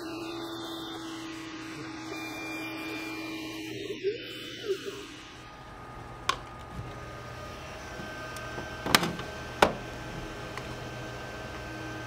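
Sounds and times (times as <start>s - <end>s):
laser cutter humming: 0.0s - 12.0s
machine door clacking open: 8.5s - 9.9s.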